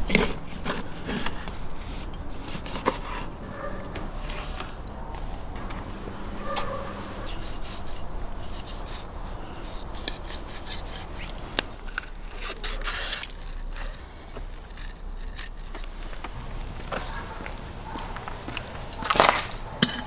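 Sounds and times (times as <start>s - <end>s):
knife scraping fish on a board: 0.1s - 3.3s, 7.2s - 15.8s.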